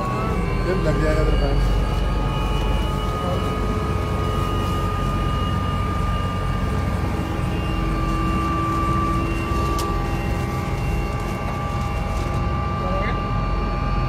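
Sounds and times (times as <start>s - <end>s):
helicopter cabin whine and rumble: 0.0s - 14.0s.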